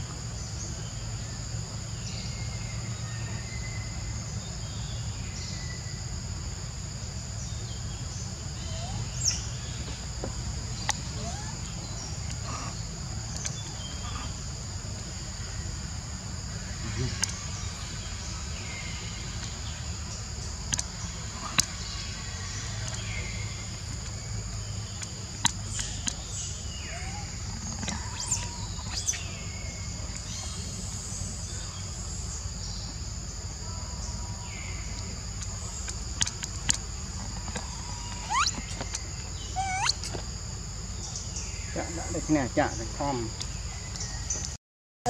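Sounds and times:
high insect drone: 0.0 - 44.6
brief gliding calls: 37.7 - 38.7, 39.5 - 40.2.

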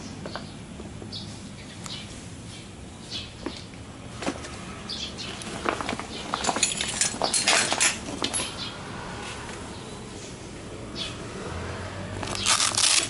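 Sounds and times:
nylon rustling: 12.2 - 13.0.

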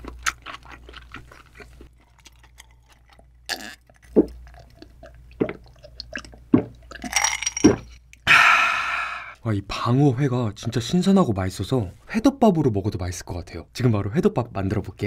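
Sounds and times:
close chewing: 0.0 - 7.0.

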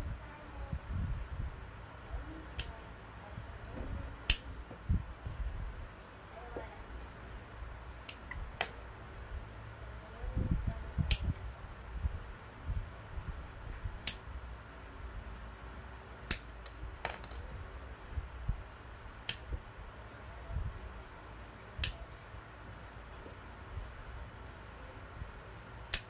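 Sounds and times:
hard plastic clicks: 21.8 - 22.1.

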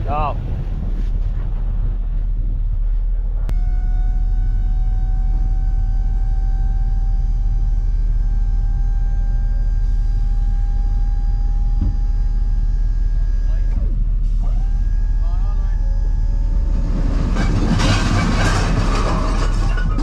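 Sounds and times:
truck engine low rumble: 0.0 - 20.0
faint whine rising in pitch: 2.4 - 16.9.

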